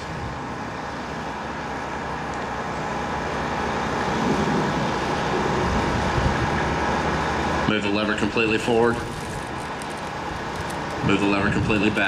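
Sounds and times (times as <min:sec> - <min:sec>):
low rumble with hiss: 0:00.0 - 0:12.0.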